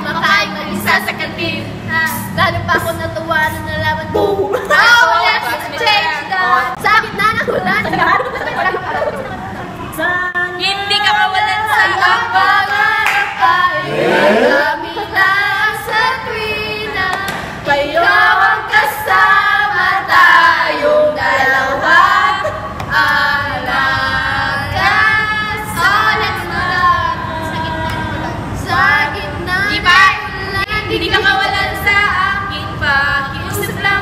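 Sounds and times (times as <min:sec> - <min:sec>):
women singing unaccompanied: 0:00.0 - 0:34.0
hand claps: 0:13.0 - 0:13.4, 0:17.1 - 0:17.5.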